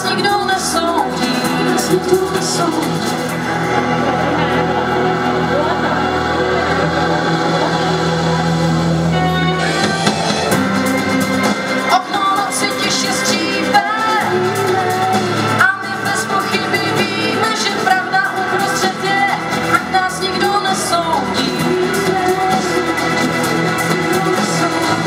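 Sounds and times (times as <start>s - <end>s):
woman singing: 0.0s - 3.4s, 11.8s - 25.0s.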